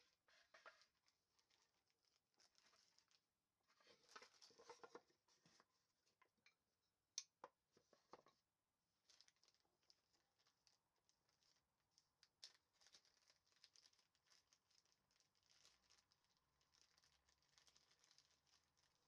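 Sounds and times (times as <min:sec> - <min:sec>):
faint rustling: 0:00.0 - 0:06.3.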